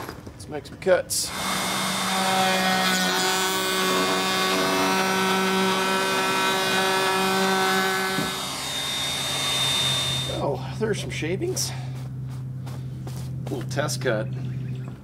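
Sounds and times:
router cutting wood: 1.3s - 10.5s.

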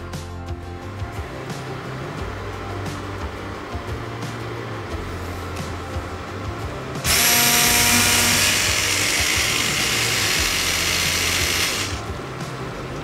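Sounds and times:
stick blender running: 7.0s - 12.3s.

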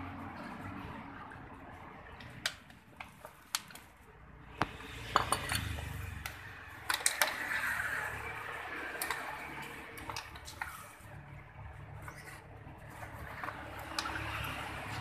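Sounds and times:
metallic clinks and knocks: 5.0s - 7.4s.

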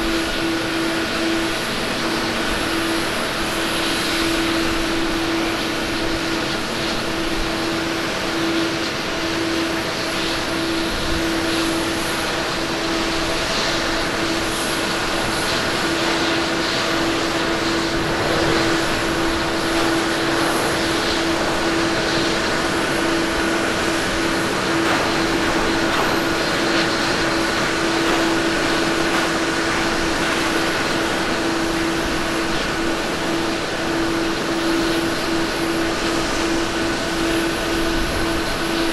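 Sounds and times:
jet engines rushing: 0.0s - 38.9s
steady hum: 14.3s - 38.9s.

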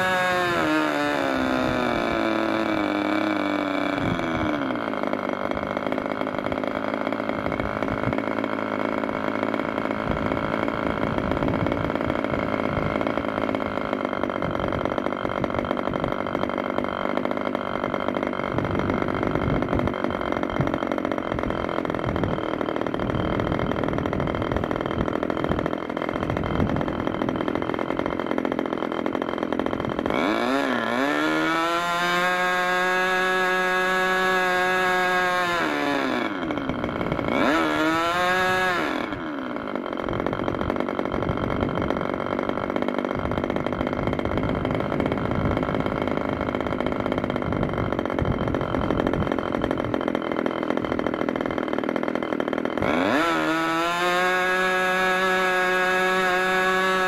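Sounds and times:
model engine idling and revving: 0.0s - 57.0s.

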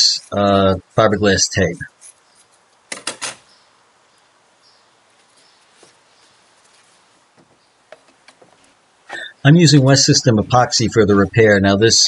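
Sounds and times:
fiberglass tape rustling: 5.1s - 8.8s.

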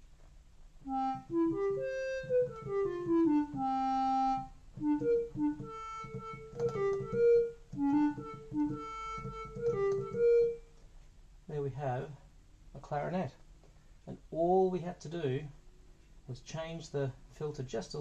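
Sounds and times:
synthesizer melody: 0.9s - 10.6s.

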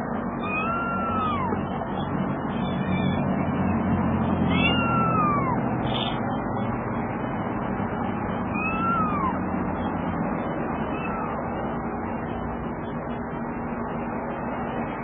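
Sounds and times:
kitten mewing: 0.4s - 6.2s, 8.5s - 9.4s, 10.8s - 11.4s.

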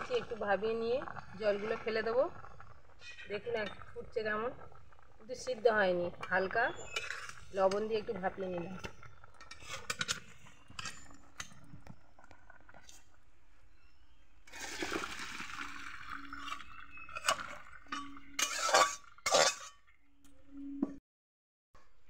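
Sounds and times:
water splashing into colander: 14.5s - 19.5s.

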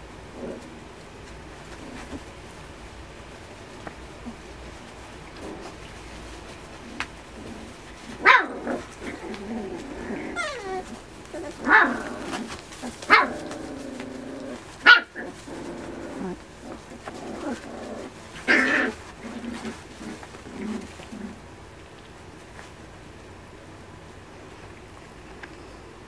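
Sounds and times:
puppies growling: 0.2s - 1.0s, 1.6s - 2.4s, 3.8s - 22.8s
puppies whining: 8.8s - 15.5s
puppies yapping: 10.0s - 15.5s.

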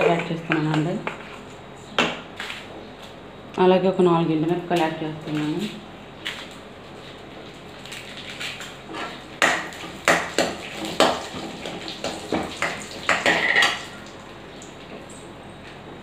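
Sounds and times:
spices frying in oil: 7.5s - 15.3s
metal spoon scraping a pan: 13.1s - 13.8s.

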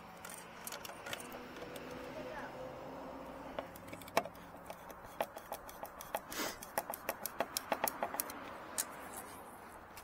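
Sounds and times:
screwdriver turning screws: 0.1s - 2.1s, 3.6s - 9.3s.

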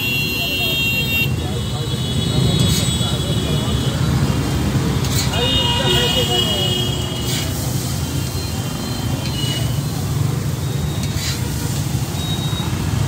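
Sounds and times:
street traffic rumble: 0.0s - 13.0s
spatula scraping metal griddle: 5.0s - 5.5s, 11.0s - 11.6s.

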